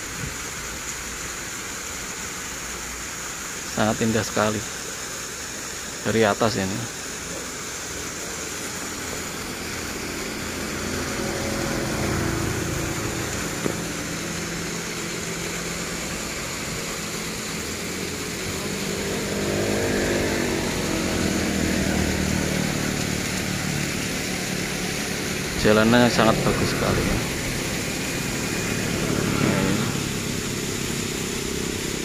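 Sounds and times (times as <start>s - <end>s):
steady rushing hiss: 0.0s - 32.0s
motorcycles passing by: 9.0s - 32.0s.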